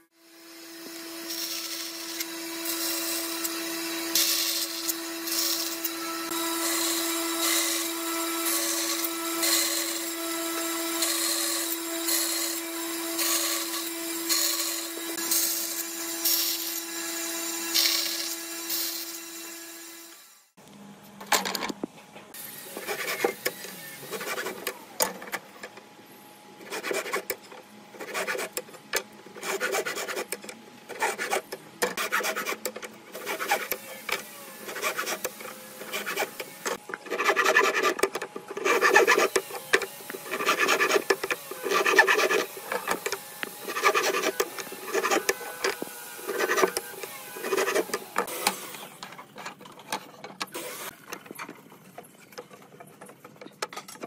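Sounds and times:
hand saw cutting wood: 22.7s - 24.8s, 26.6s - 27.4s, 28.0s - 28.7s, 29.4s - 49.0s.

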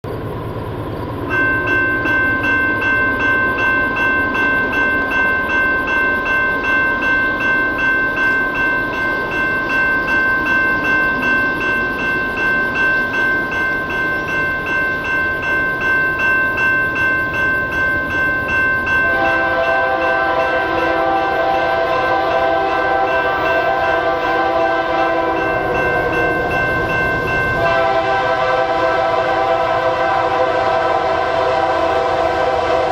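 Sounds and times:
level crossing warning bell ringing: 1.2s - 32.9s
train horn: 19.0s - 26.7s, 27.5s - 32.9s.

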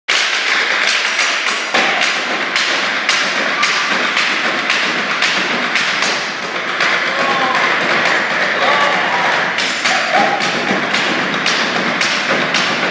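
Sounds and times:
performers beating wooden crate: 0.1s - 12.9s.

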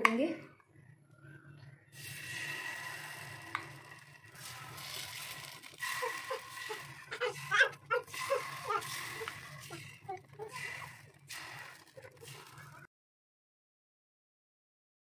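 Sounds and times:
sizzling in a pan: 2.0s - 12.8s.

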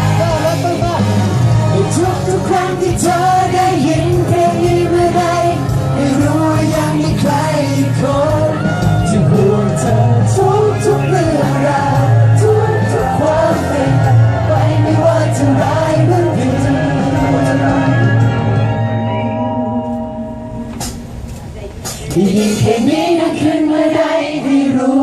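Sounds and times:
men singing into microphones: 0.0s - 18.5s, 22.1s - 25.0s
amplified pop music: 0.0s - 21.1s, 21.8s - 25.0s.

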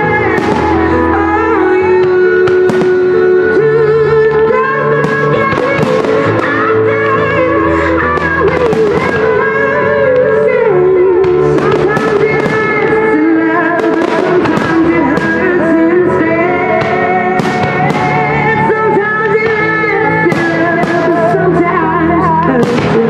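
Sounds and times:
loud music: 0.0s - 23.0s
fireworks bursting and crackling: 0.3s - 1.0s, 2.1s - 3.3s, 5.0s - 6.7s, 8.1s - 9.5s, 11.2s - 15.9s, 16.7s - 18.6s, 19.4s - 21.5s, 22.5s - 23.0s.

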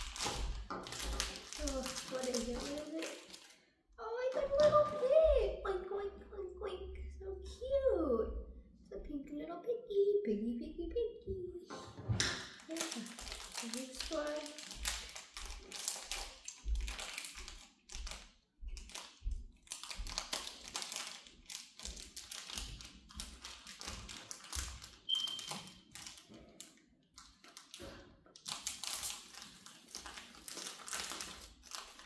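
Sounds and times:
foil wrapper crinkling: 0.0s - 3.7s, 12.5s - 32.0s.

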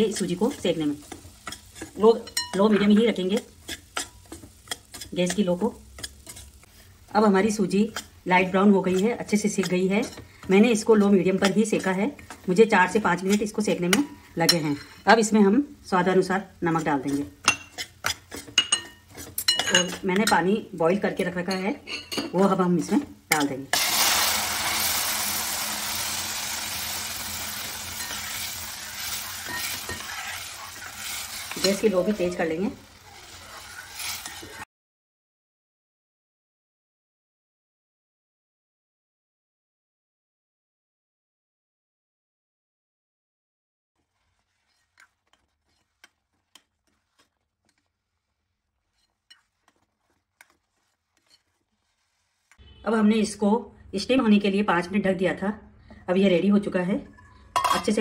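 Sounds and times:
ladle stirring: 0.0s - 7.0s, 16.7s - 20.5s, 21.2s - 34.6s, 44.0s - 52.6s
spoon clinking against metal pot: 0.1s - 2.7s, 17.1s - 20.4s, 27.9s - 30.5s, 57.1s - 58.0s
hissing sizzle of water in hot fat: 23.7s - 34.6s.

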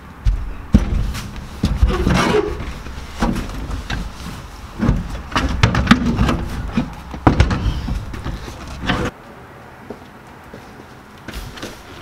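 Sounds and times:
seat frame knocking and scraping: 0.3s - 9.1s.

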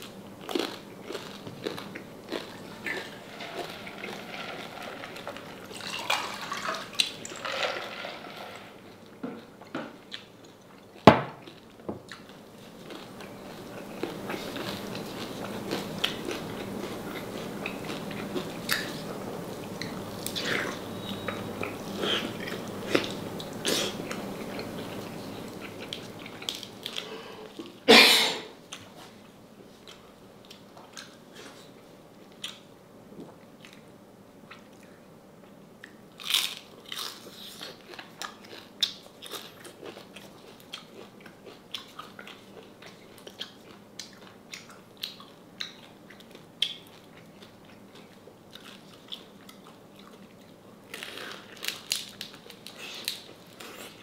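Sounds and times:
person chewing crispy pork: 0.0s - 7.1s, 10.1s - 27.8s, 35.8s - 54.0s.

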